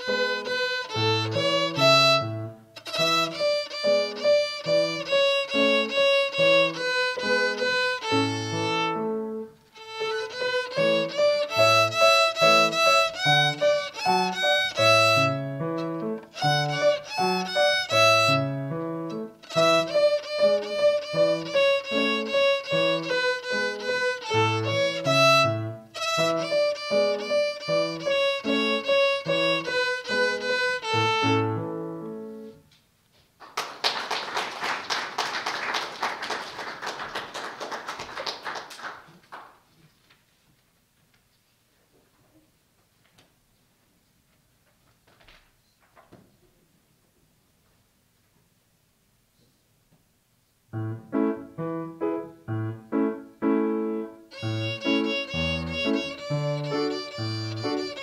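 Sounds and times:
violin fiddle tune: 0.0 - 32.6, 50.8 - 58.0
piano accompaniment: 0.0 - 32.7, 50.7 - 58.0
audience clapping: 33.4 - 39.9.

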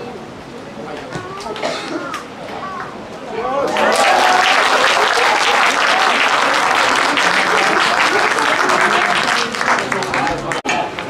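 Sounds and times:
spectators clapping: 3.6 - 11.0.

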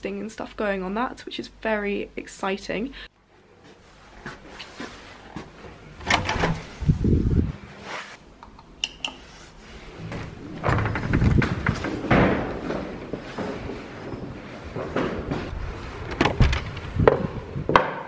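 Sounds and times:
doors thudding shut: 6.0 - 6.7, 10.5 - 12.7
knocks and handling noise: 10.0 - 18.0.

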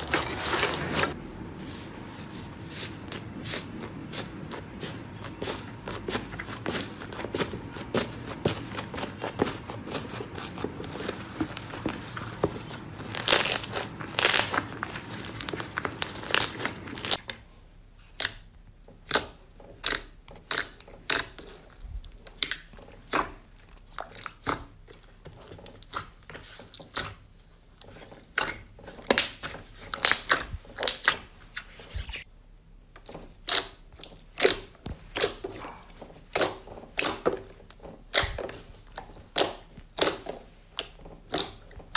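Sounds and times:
slime crackling and popping: 13.0 - 17.2, 39.2 - 41.7.

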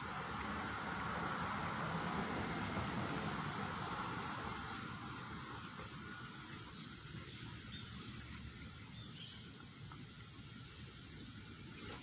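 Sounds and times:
low outdoor rumble: 0.0 - 8.8
insect trill: 3.5 - 12.0.

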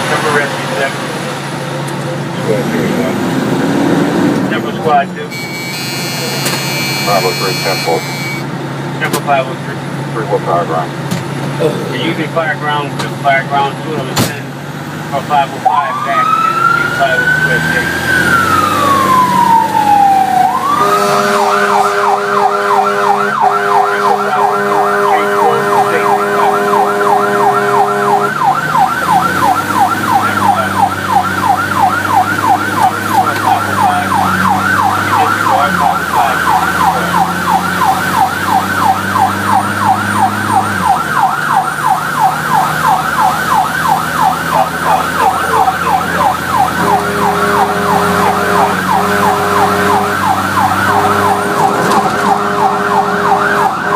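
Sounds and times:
truck engine drone: 0.0 - 53.9
electronic siren wailing and yelping: 4.9 - 8.5, 15.6 - 53.9
air horn blast: 5.3 - 8.5, 20.6 - 28.4, 46.8 - 53.9.

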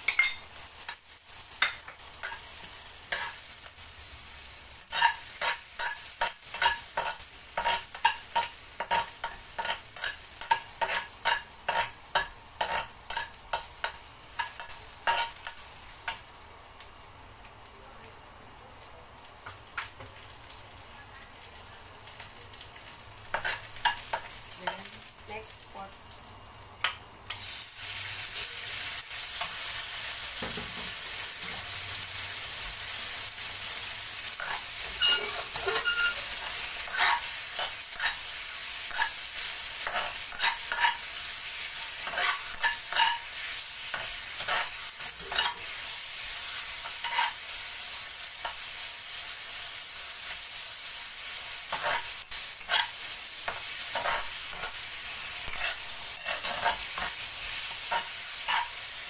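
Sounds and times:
meat sizzling in hot oil: 0.0 - 59.0
metal spatula scraping and tapping: 1.6 - 2.4, 3.1 - 3.4, 4.9 - 16.2, 34.4 - 38.2, 39.8 - 41.0, 42.0 - 43.3, 43.9 - 45.6, 46.8 - 47.4, 51.7 - 54.8, 55.4 - 58.8.

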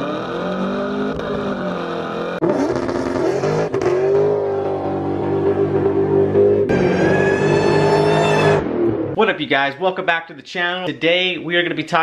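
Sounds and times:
supercharged car engine running: 0.0 - 9.2.

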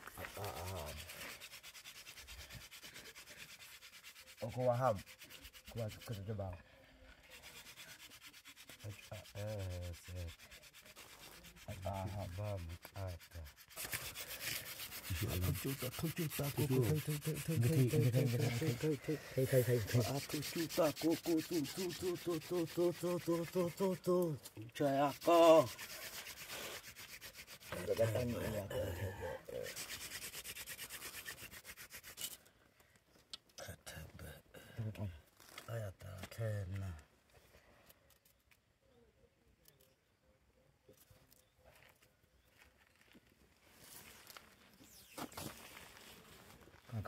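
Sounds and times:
wood rasping on wood: 0.0 - 6.6, 7.2 - 32.4.

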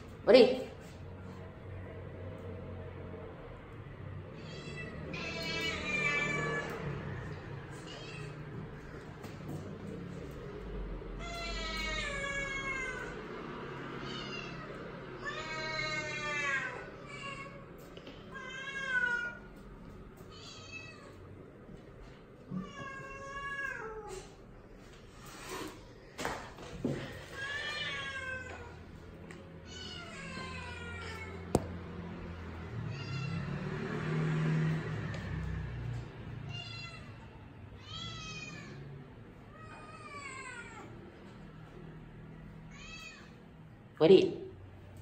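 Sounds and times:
cat meowing: 4.3 - 7.0, 7.6 - 8.6, 11.2 - 13.2, 20.3 - 21.2, 22.5 - 24.4, 27.2 - 28.9, 29.6 - 31.8, 32.8 - 33.6, 36.5 - 38.9, 42.7 - 43.4.

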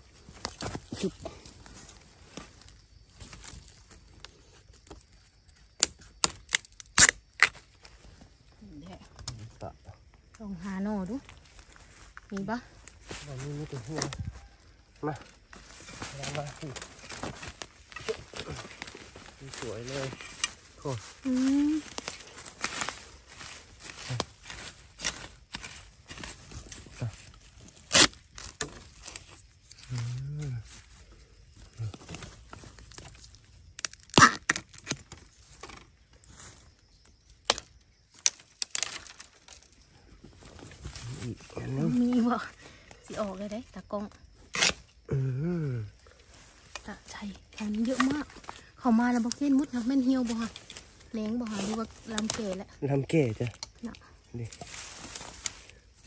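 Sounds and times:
bamboo cracking: 0.1 - 56.0
dry leaves rustling and crackling: 11.1 - 31.0, 38.2 - 42.5, 46.2 - 56.0.

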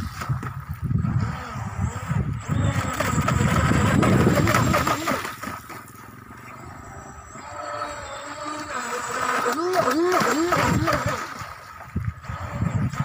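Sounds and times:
rc boat motor whine: 0.0 - 13.0
wind and water rumble: 0.0 - 13.0.

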